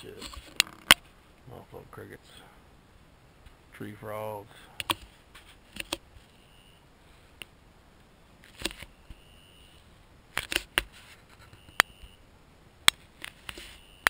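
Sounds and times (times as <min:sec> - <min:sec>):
crickets and tree frogs buzzing: 0:08.3 - 0:09.9
camera handling clicks and knocks: 0:10.4 - 0:10.9.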